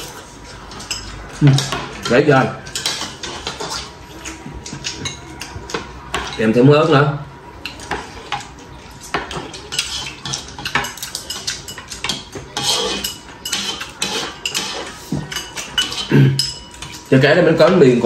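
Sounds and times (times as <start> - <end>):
utensils clinking on ceramic bowls: 0.0 - 6.9, 7.6 - 18.0
chewing and slurping: 2.7 - 5.8, 7.6 - 17.1.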